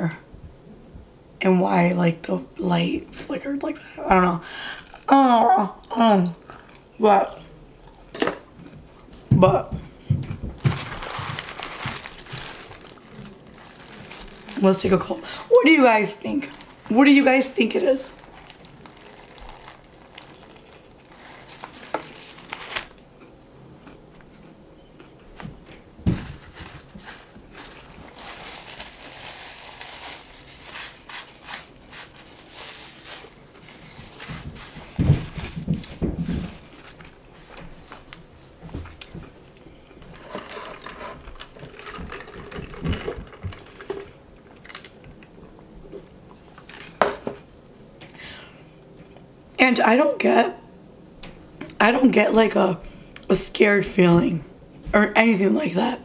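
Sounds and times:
paper wrapper rustling: 0:10.5 - 0:15.3, 0:16.2 - 0:23.0, 0:26.1 - 0:38.2
cup handling clicks and rustles: 0:39.8 - 0:45.3.

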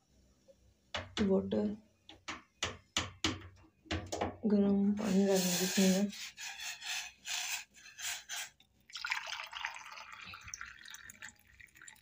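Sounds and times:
short scraping sounds: 0:05.0 - 0:08.6
hot water pouring into a mug: 0:08.5 - 0:12.0.

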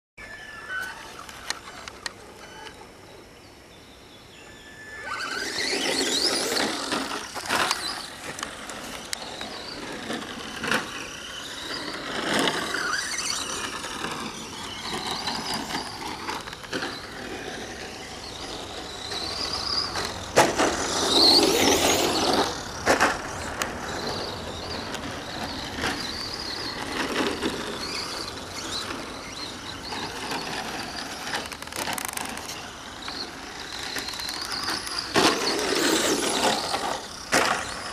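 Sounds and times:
high motor whine: 0:03.8 - 0:37.9
tyre scrabble: 0:05.1 - 0:37.9.

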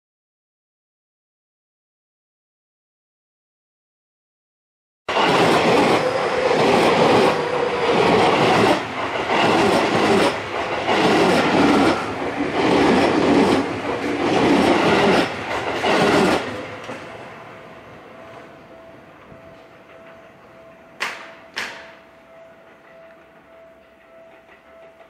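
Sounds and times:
train wheels clattering over rail joints: 0:05.1 - 0:17.2, 0:19.4 - 0:25.0.

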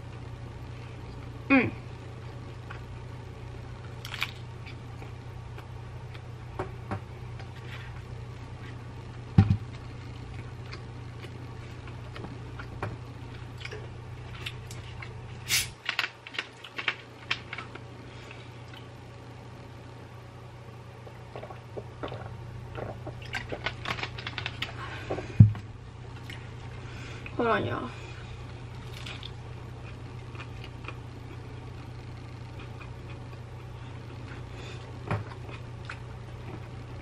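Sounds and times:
steady low hum: 0:00.0 - 0:37.0
quiet eating sounds: 0:07.3 - 0:19.0, 0:26.1 - 0:37.0.

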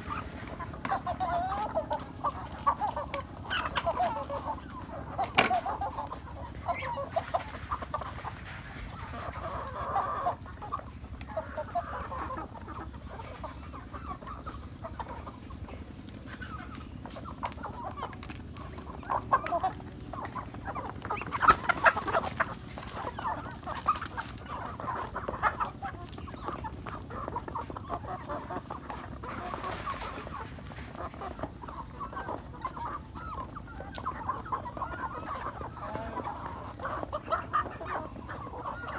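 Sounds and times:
hens clucking: 0:00.0 - 0:38.9.

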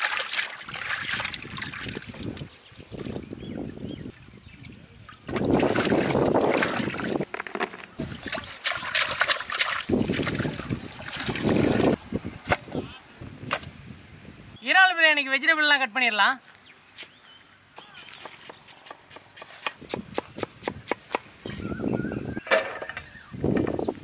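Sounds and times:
water splashing in a steel pot: 0:00.0 - 0:03.2, 0:05.1 - 0:07.2, 0:08.0 - 0:12.0.

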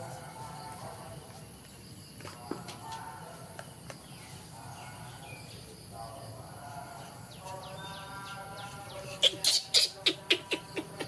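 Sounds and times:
baby monkey chirping and whining: 0:07.6 - 0:11.0
baby monkey shrill squeaks: 0:09.1 - 0:11.0.

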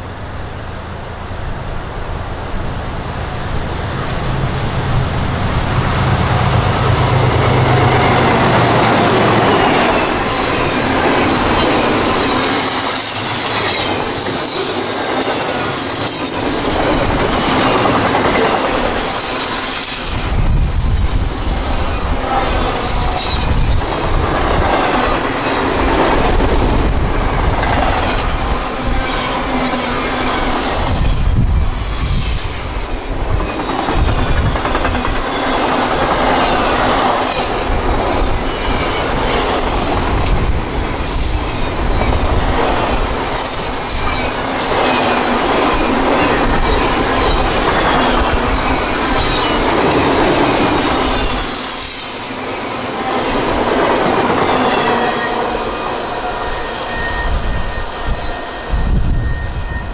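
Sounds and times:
train wheels rumbling on rail: 0:00.0 - 0:59.9
faint flange squeal: 0:54.4 - 0:59.9.

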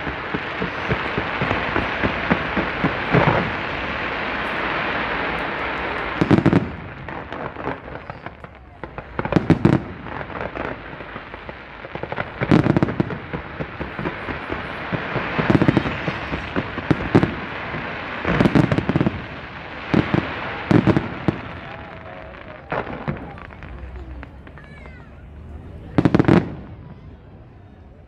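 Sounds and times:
firework bangs: 0:00.0 - 0:28.0
crackling hiss of sparks: 0:10.4 - 0:21.4.

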